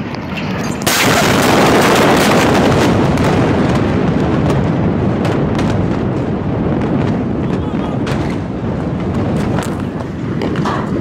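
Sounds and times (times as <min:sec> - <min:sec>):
explosion rumble: 0:00.0 - 0:11.0
sharp crackles: 0:00.0 - 0:11.0.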